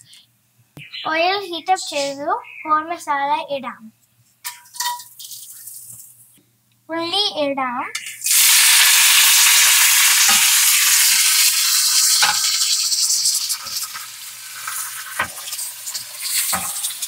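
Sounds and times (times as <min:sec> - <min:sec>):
onions sizzling in hot oil: 0:08.0 - 0:17.0.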